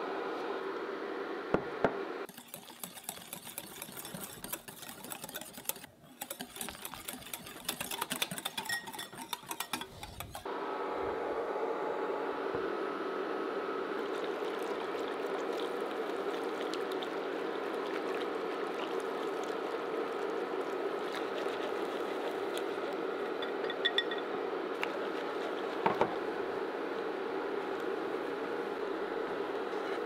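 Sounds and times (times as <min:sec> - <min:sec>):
electric cooktop hum: 0:00.0 - 0:03.0, 0:07.9 - 0:30.0
whisk stirring in a pan: 0:02.3 - 0:10.5, 0:14.0 - 0:23.0, 0:24.8 - 0:25.8.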